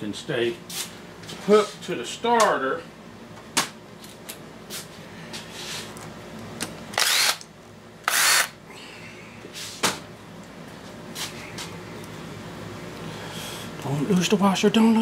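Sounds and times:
cordless drill whining: 0:07.0 - 0:07.4, 0:08.1 - 0:08.5.

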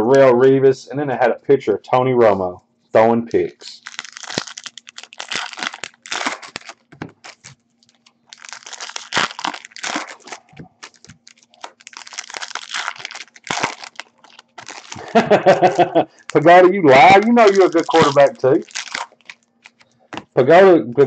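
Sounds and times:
wrappers crinkling: 0:03.7 - 0:20.2
card packs torn open: 0:03.8 - 0:19.9.

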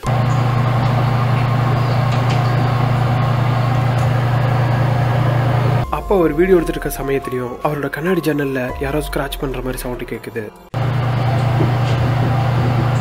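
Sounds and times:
low hum with whirring rush: 0:00.0 - 0:07.3, 0:10.8 - 0:13.0.

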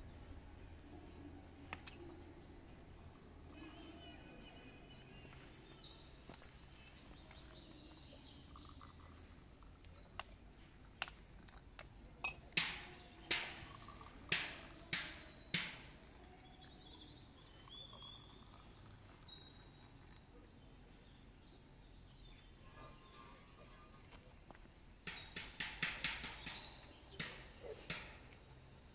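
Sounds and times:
faint birds chirping: 0:00.0 - 0:28.9
tea glasses clinking on tray: 0:08.3 - 0:09.2, 0:12.2 - 0:15.9.

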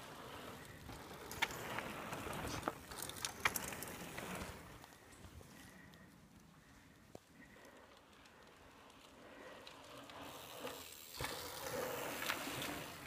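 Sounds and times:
bike tyres on dirt: 0:00.0 - 0:13.0
bike clicks and knocks: 0:00.9 - 0:05.2.

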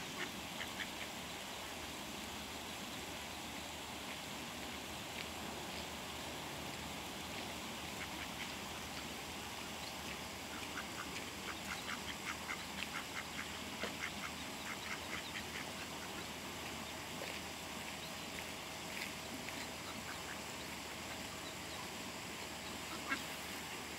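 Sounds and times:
ducklings peeping: 0:07.3 - 0:23.4.

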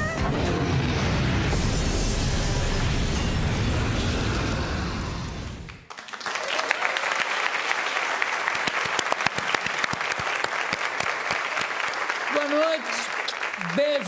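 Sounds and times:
audience applauding: 0:05.7 - 0:14.0.

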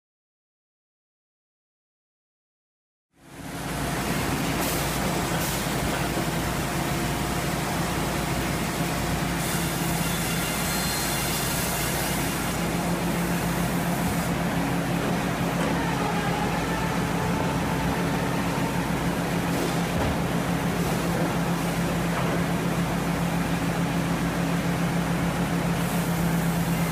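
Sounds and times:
resaw machine drone: 0:12.1 - 0:25.5.

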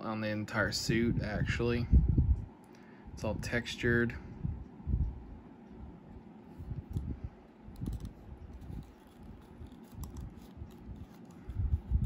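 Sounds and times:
plastic figure clicks and scrapes: 0:07.7 - 0:12.0.

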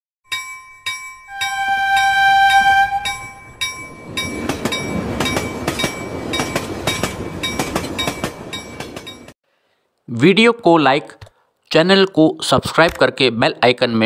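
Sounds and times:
tinkling chimes: 0:00.3 - 0:06.7
train horn: 0:01.3 - 0:03.4
train wheels clattering on rails: 0:03.1 - 0:09.4.

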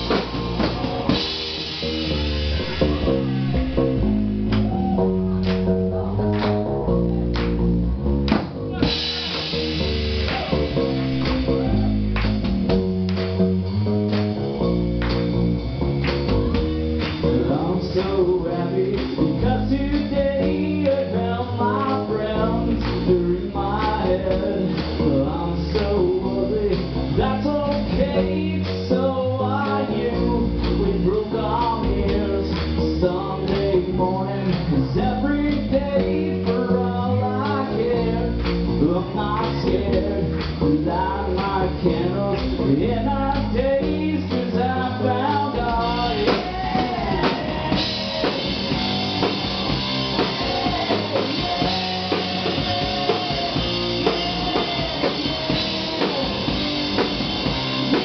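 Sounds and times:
live rock band playing: 0:00.0 - 0:58.0
man singing: 0:17.2 - 0:57.2.

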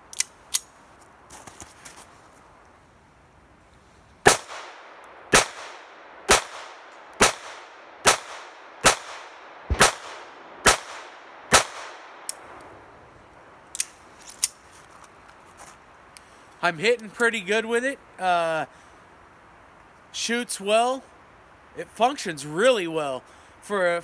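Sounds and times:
pistol shots: 0:04.2 - 0:12.4.

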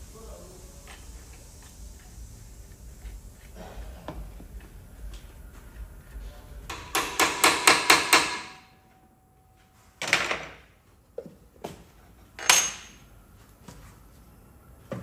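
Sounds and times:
hammer striking metal: 0:06.7 - 0:08.8.

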